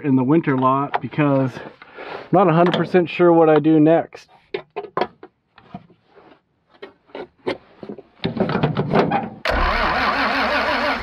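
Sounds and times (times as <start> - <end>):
diesel engine cranking on starter: 9.4 - 11.0.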